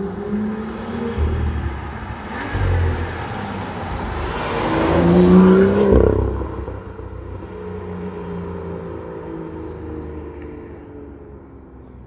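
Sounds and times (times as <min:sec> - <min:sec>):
car engine accelerating hard: 0:00.0 - 0:10.5.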